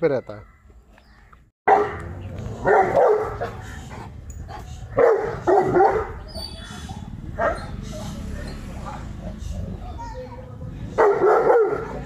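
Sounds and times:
dog barking: 1.7s - 3.6s, 5.0s - 6.2s, 7.4s - 7.8s, 11.0s - 12.0s.

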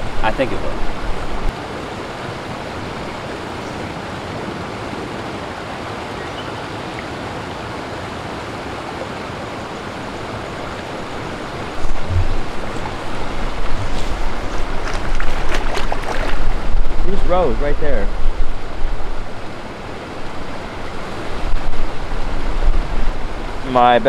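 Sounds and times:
river water rushing: 0.0s - 24.0s
low rumble on microphone: 11.0s - 19.6s.

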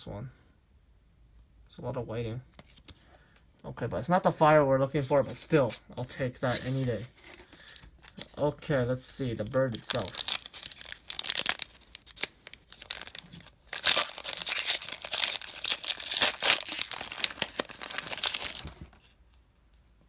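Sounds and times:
foil wrapper crinkling and tearing: 9.4s - 19.0s.

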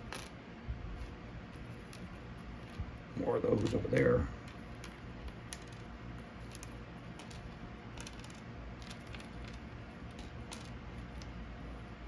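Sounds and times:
tokens clicking on wooden table: 0.0s - 0.4s, 1.6s - 2.8s, 3.6s - 11.4s.

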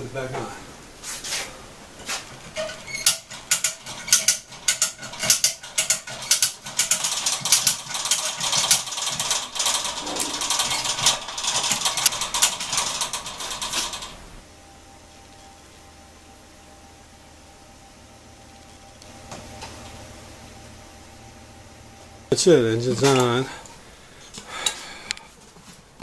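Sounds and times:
hand hoist ratcheting: 2.4s - 14.2s
chain rattling: 3.6s - 14.2s.

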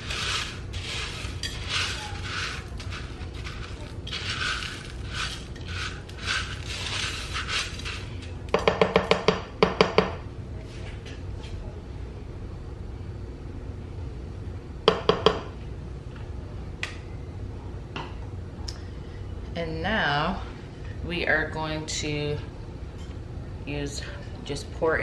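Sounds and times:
spatula scraping in crock: 0.0s - 8.4s.

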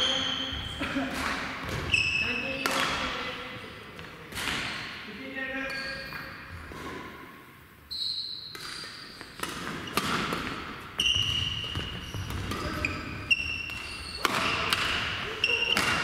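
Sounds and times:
shoes squeaking on floor: 0.0s - 0.8s, 1.7s - 2.7s, 5.6s - 6.7s, 7.9s - 16.0s
racket hitting shuttlecock: 2.6s - 3.3s, 4.0s - 5.1s, 8.5s - 16.0s.

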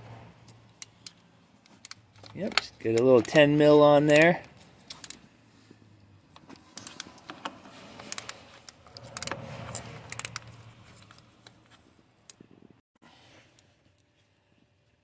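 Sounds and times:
ratchet clicking: 8.0s - 10.5s.

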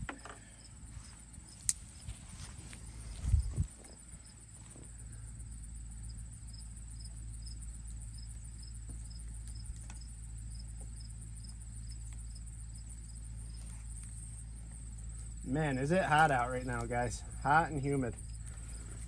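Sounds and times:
insect chirping: 0.0s - 19.0s
steady high buzz: 0.0s - 19.0s
low rumble: 0.7s - 10.6s.

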